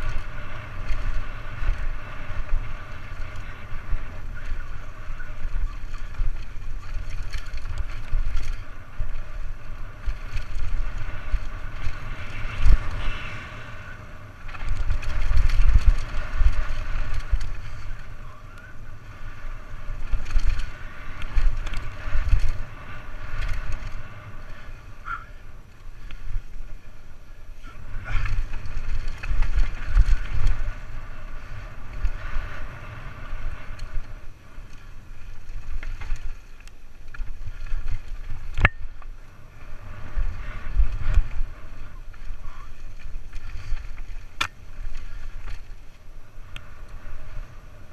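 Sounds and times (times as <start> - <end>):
bike knocks and rattles: 0.0 - 13.2, 14.4 - 18.1, 19.6 - 24.6
tyre noise on dirt: 0.0 - 26.8, 27.6 - 47.9
wind buffeting microphone: 0.0 - 47.9.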